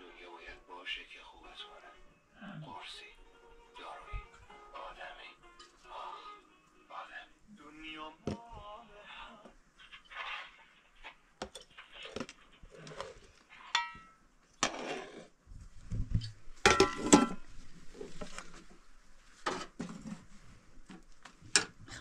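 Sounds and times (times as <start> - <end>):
metal ladle clinking in pot: 13.7 - 14.2, 16.7 - 17.4.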